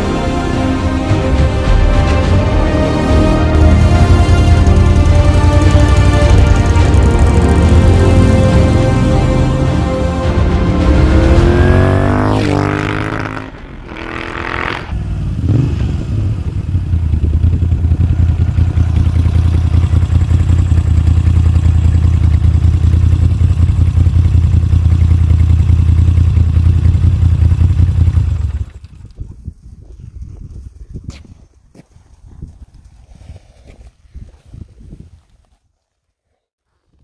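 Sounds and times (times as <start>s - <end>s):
motorcycle engine revving and idling: 3.5s - 9.2s, 10.6s - 29.4s.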